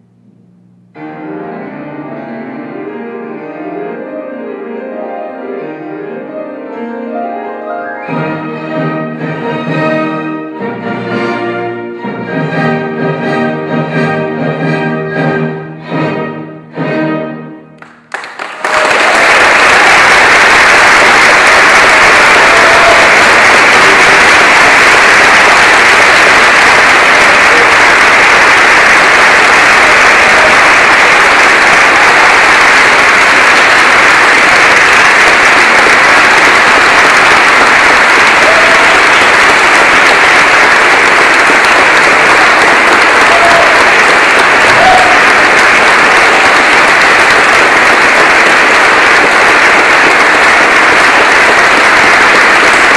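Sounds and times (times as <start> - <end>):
classical music: 0.0 - 52.9
audience applauding: 17.8 - 52.9.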